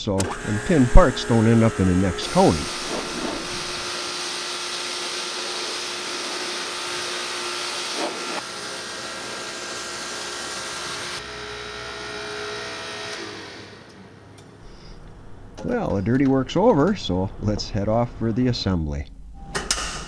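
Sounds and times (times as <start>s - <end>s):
pressure washer hum: 0.0s - 15.6s
water spray hissing: 0.5s - 8.4s.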